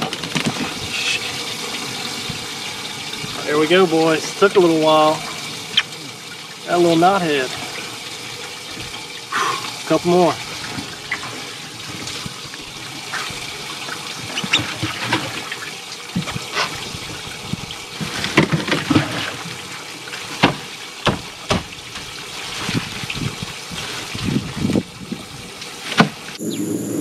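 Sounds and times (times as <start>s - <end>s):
knocks and clunks handling fish: 0.0s - 4.4s, 7.0s - 26.3s
water trickling and sloshing: 0.0s - 26.4s
steady hum: 26.4s - 27.0s.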